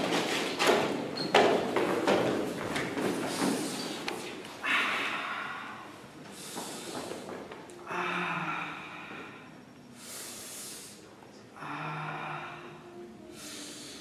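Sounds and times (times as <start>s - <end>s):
man breathing heavily: 3.0s - 14.0s
man moaning breaths out: 7.8s - 9.5s.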